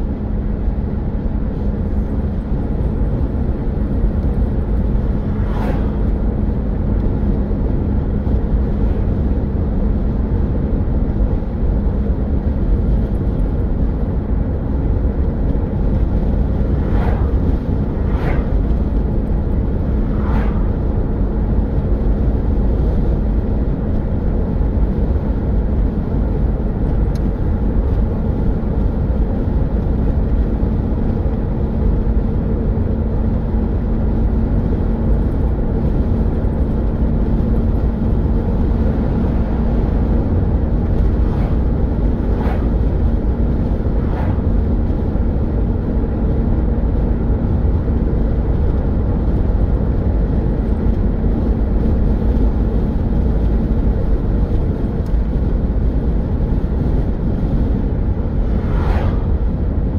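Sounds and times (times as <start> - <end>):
road and engine rumble: 0.0 - 59.9
steady drone: 2.8 - 7.7, 15.0 - 22.5, 37.1 - 46.4, 57.6 - 59.9
brief whooshes: 5.0 - 6.3, 16.6 - 21.2, 40.8 - 44.8, 58.4 - 59.5.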